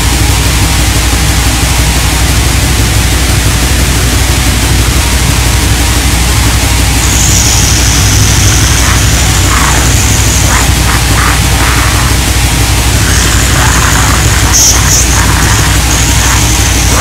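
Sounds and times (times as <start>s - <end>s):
distorted black metal music: 0.0s - 17.0s
low drone: 0.0s - 17.0s
high thin tone: 12.9s - 17.0s.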